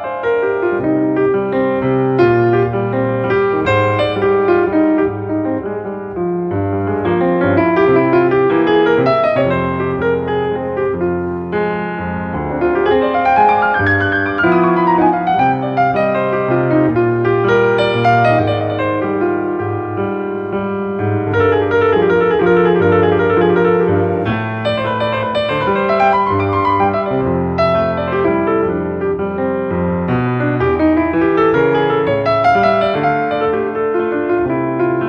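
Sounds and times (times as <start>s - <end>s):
solo piano music: 0.0s - 35.0s.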